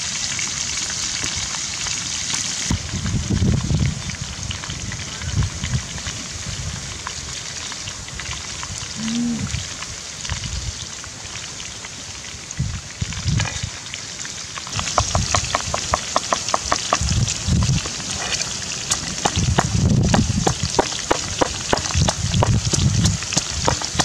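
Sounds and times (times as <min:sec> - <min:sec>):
crackling sizzle from a pan: 0:00.0 - 0:24.0
pestle pounding in clay mortar: 0:14.7 - 0:24.0.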